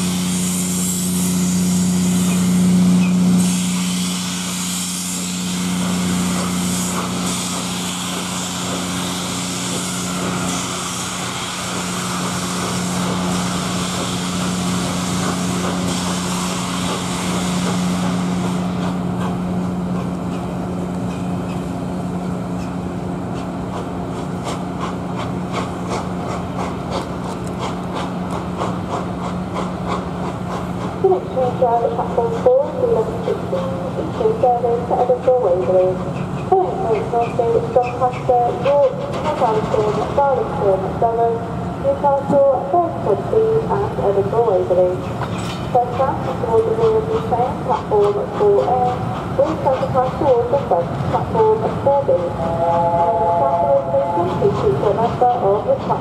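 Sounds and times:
loud steam hiss: 0:00.0 - 0:19.4
locomotive low drone: 0:00.0 - 0:56.0
train wheels clicking: 0:02.1 - 0:21.7, 0:22.6 - 0:40.2, 0:45.0 - 0:56.0.

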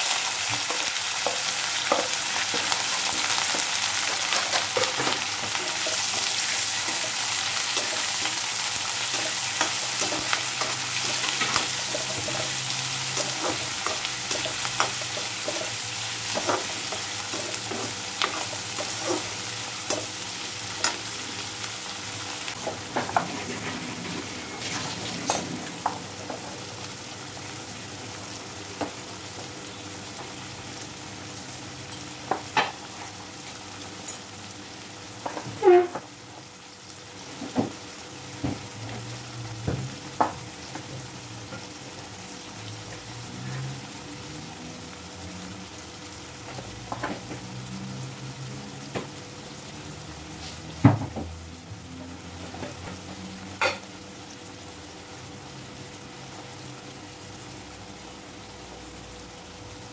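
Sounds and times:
onions sizzling in hot oil: 0:00.0 - 0:59.9.

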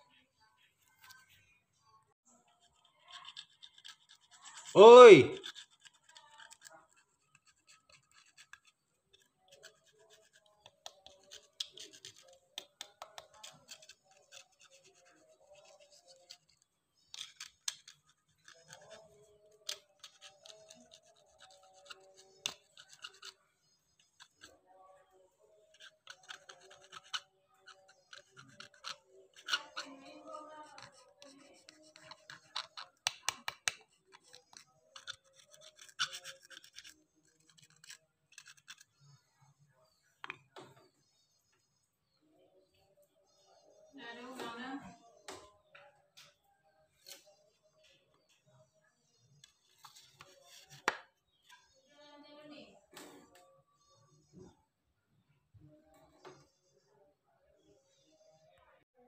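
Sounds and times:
plastic nozzle scratching and clicking: 0:02.5 - 0:04.8, 0:05.4 - 0:39.2, 0:49.4 - 0:51.6.

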